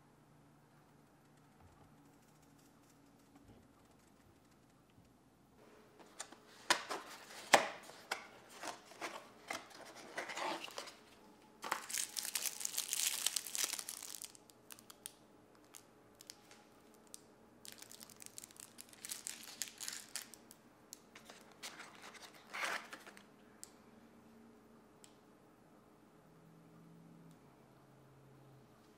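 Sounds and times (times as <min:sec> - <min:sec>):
plastic packaging crinkling: 0:11.6 - 0:20.6.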